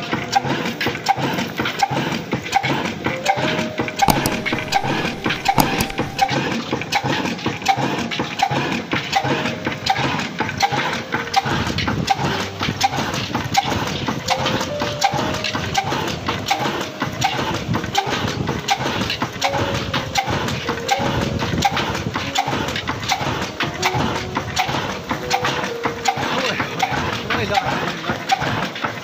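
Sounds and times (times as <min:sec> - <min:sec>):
oil engine knocking: 0:09.1 - 0:29.0
melody of short notes: 0:14.2 - 0:27.3.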